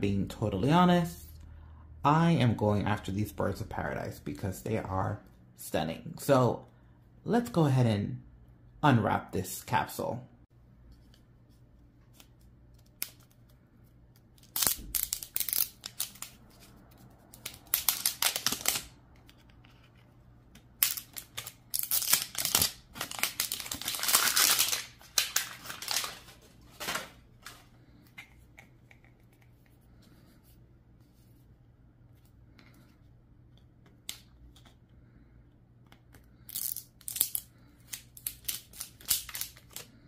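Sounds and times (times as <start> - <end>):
plastic wrapper crinkling and tearing: 14.4 - 16.6, 17.3 - 19.0, 20.8 - 27.6, 38.1 - 40.0.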